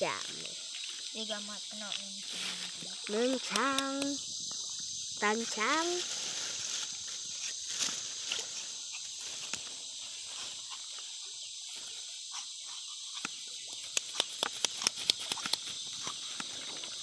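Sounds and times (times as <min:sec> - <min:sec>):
insect chorus: 0:00.0 - 0:17.0
knife cutting bamboo: 0:13.1 - 0:16.5.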